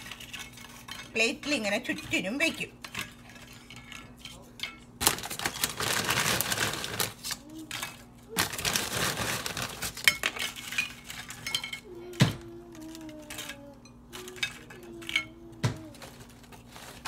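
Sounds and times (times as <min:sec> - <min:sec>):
tortilla chips crackling: 0:05.0 - 0:07.7, 0:08.3 - 0:11.3.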